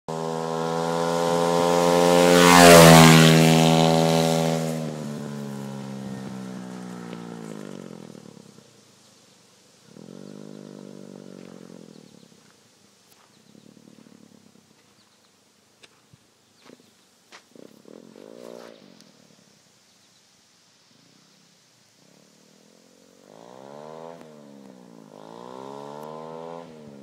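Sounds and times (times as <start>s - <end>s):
small off-road engine running: 0.1s - 8.8s, 22.1s - 27.0s.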